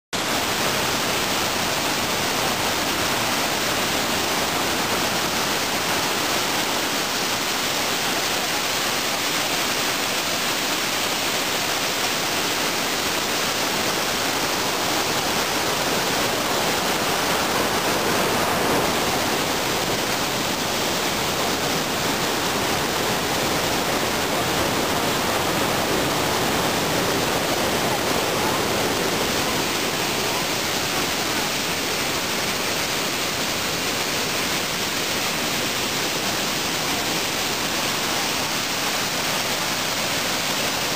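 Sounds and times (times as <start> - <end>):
waterfall rushing over rocks: 0.1 - 40.9.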